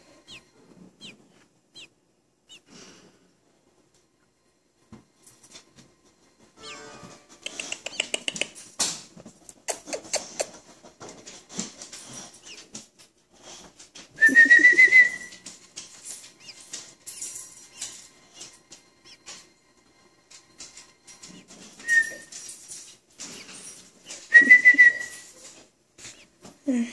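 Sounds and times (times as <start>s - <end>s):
baby bird chirping: 0.0s - 2.7s, 7.5s - 8.5s, 12.3s - 12.7s, 14.2s - 15.4s, 16.3s - 19.4s, 23.2s - 25.3s, 26.0s - 26.4s.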